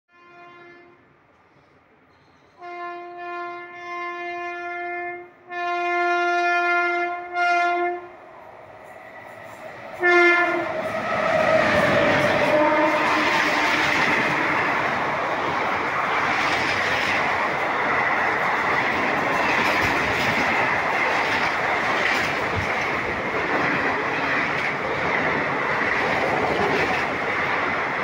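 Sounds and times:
train horn blasts: 0:00.1 - 0:01.1, 0:02.6 - 0:08.2, 0:09.9 - 0:14.6
train rushing past: 0:05.5 - 0:28.0.

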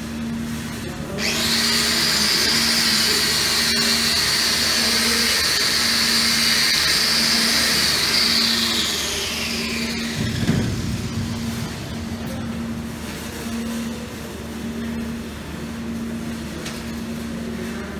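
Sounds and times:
angle grinder whining: 0:01.1 - 0:12.7.

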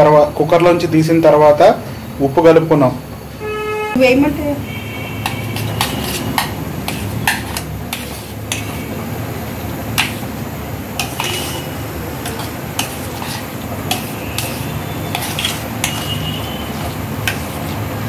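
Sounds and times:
metal spoon clinking in metal bowl: 0:05.2 - 0:08.8, 0:11.0 - 0:11.6, 0:12.2 - 0:17.5.

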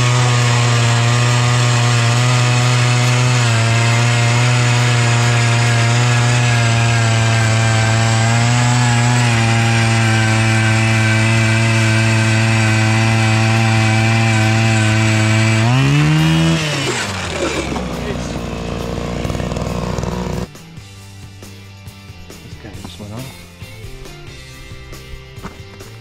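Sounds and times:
ice auger engine running: 0:00.0 - 0:20.5.

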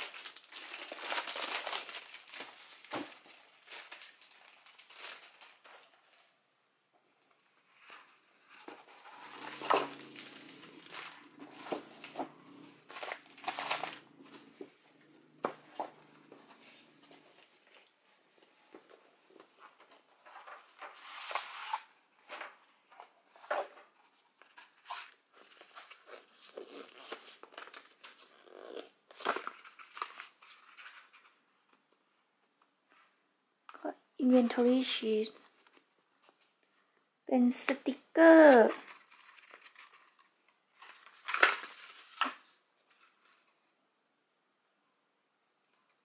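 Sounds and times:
paper rustling and crinkling: 0:00.0 - 0:06.3, 0:07.5 - 0:31.9, 0:38.3 - 0:43.6.

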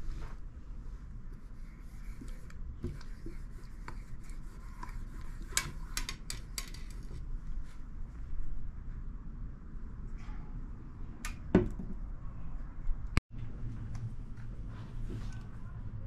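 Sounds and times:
marker rubbing on metal sheet: 0:01.5 - 0:07.0.

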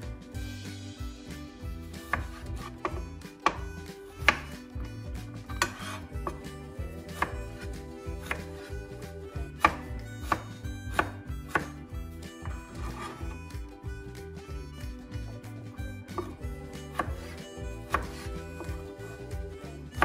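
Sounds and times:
knife chopping on cutting board: 0:02.0 - 0:04.9, 0:05.5 - 0:11.8, 0:12.4 - 0:13.4, 0:16.1 - 0:19.2.

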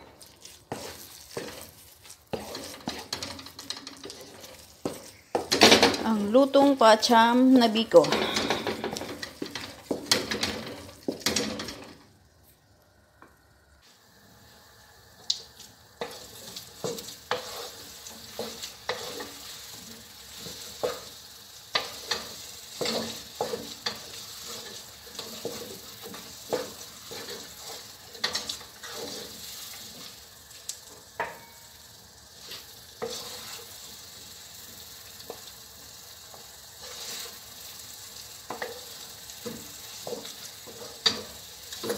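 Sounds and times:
spatula scraping a wok: 0:00.0 - 0:05.6, 0:07.9 - 0:12.0, 0:16.0 - 0:41.9
food sizzling: 0:00.0 - 0:41.9.

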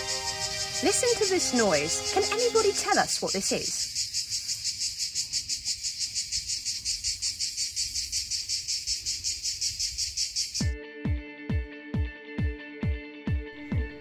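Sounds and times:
cicadas buzzing: 0:00.0 - 0:10.8.

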